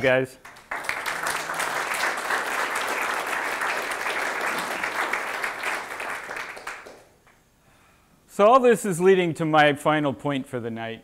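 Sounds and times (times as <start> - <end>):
audience applause: 0.4 - 7.1.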